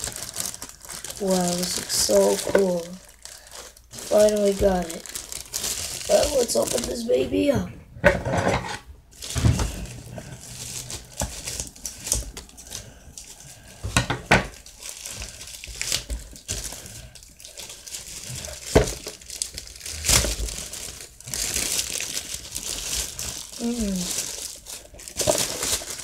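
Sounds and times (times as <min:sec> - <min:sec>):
plastic packaging crinkling: 0:00.0 - 0:07.6, 0:08.6 - 0:26.0.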